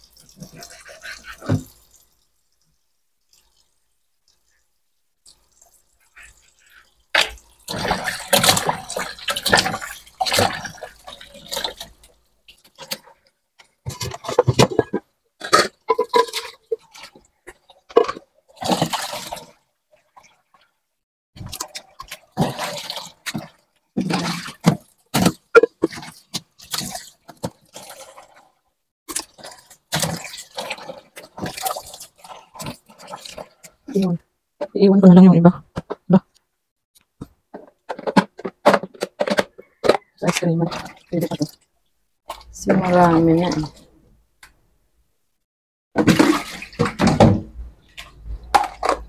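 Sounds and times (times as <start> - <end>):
tap water splashing in sink: 0.0 - 3.7, 5.2 - 20.4, 21.4 - 28.4, 29.1 - 34.1, 46.0 - 49.0.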